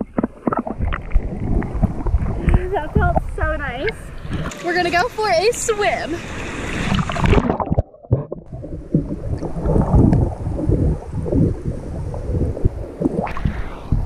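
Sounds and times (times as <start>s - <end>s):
underwater rumbling and sloshing: 0.0s - 5.0s, 6.2s - 14.0s
water splash: 6.2s - 14.0s.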